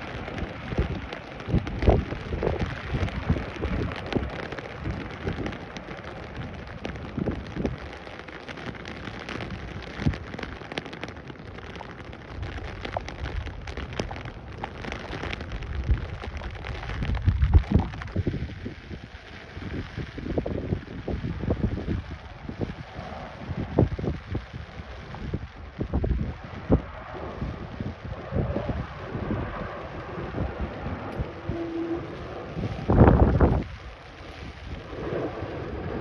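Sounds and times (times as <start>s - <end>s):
rain pattering: 0.0s - 36.0s
wind buffeting microphone: 0.0s - 36.0s.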